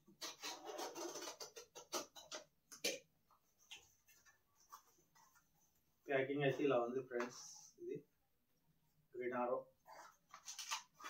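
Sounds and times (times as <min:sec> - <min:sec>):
tape and cardboard ripping: 0:00.1 - 0:02.4, 0:10.3 - 0:11.0.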